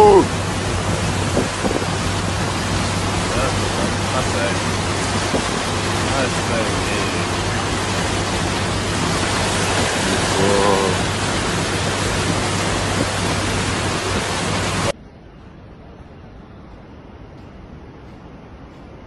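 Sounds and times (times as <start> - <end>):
floodwater rushing: 0.0 - 15.0
quiet water hiss: 0.0 - 19.0.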